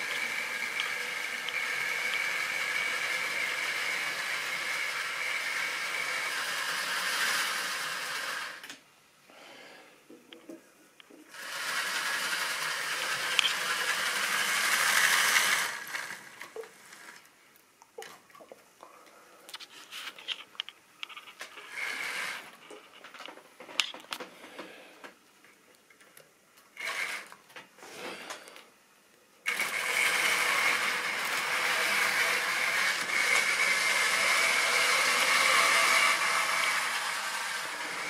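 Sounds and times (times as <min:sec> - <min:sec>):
model locomotive motor whirring: 0:00.0 - 0:08.8, 0:11.3 - 0:17.3, 0:21.4 - 0:22.8, 0:26.8 - 0:27.4, 0:29.4 - 0:38.0.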